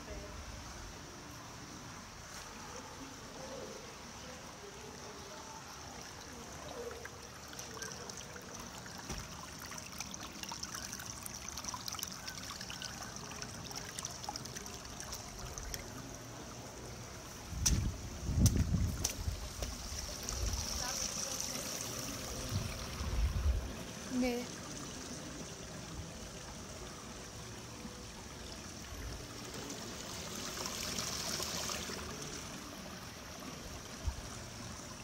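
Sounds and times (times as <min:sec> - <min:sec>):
water trickling and swirling: 0:00.0 - 0:35.0.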